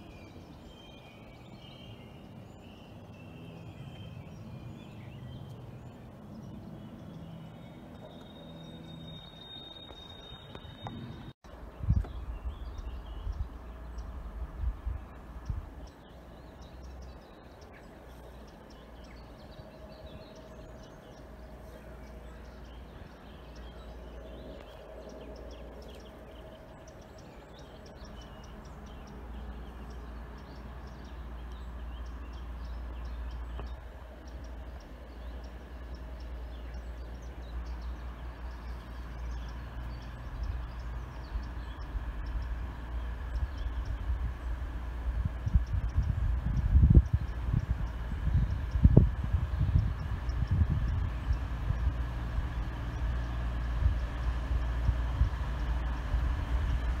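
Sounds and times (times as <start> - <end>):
birds chirping: 0.0 - 57.0
train approaching with low rumble: 0.0 - 57.0.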